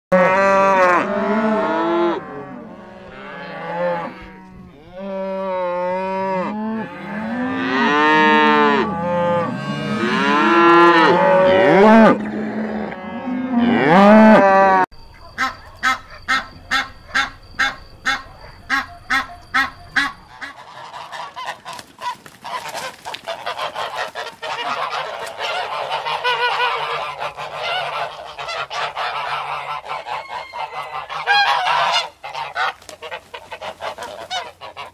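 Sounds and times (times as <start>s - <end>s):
calf mooing: 0.1s - 14.8s
ducks quacking: 15.2s - 34.9s.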